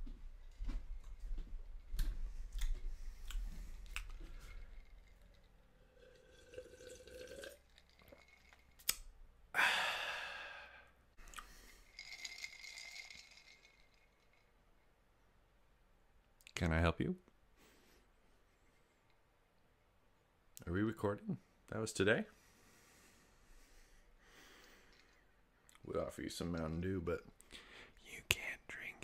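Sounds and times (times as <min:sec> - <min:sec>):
man exhaling: 0:09.5 - 0:11.6.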